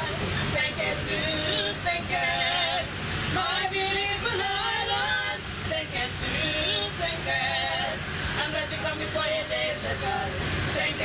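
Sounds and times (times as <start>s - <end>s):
train rumbling: 0.0s - 11.0s
women's choir singing: 0.0s - 11.0s.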